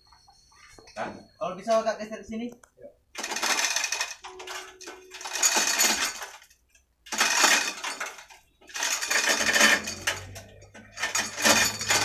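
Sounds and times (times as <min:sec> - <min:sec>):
steel chain rattling: 0:03.2 - 0:12.0.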